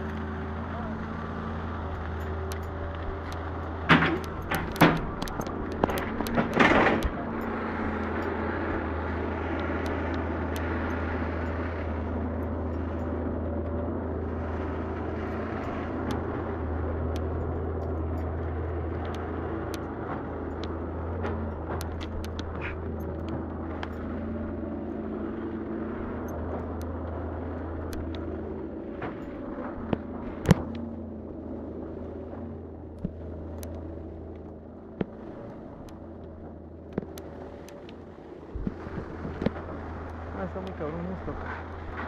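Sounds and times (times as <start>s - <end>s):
low rumble and hiss: 0.0s - 42.0s.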